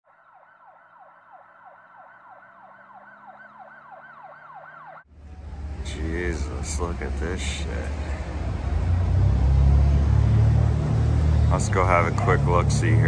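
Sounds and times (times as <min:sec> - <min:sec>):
siren in rapid falling sweeps: 0:00.1 - 0:05.1.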